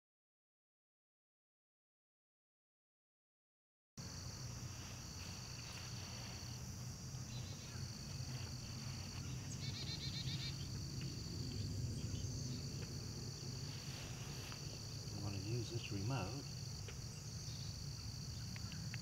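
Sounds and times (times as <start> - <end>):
low steady rumble: 4.0 - 16.7
crickets chirping: 4.0 - 19.0
bird chirps: 7.3 - 7.9, 9.1 - 10.8.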